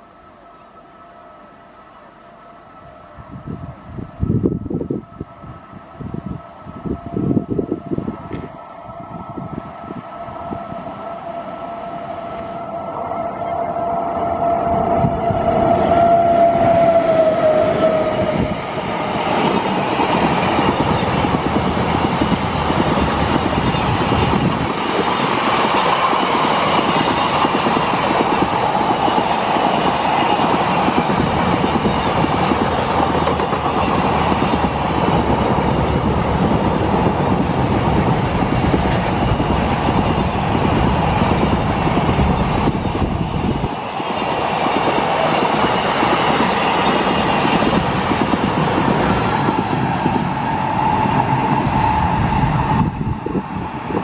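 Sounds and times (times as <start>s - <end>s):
locomotive horn blast: 0.3s - 18.8s
train wheels rumbling on rails: 2.8s - 54.0s.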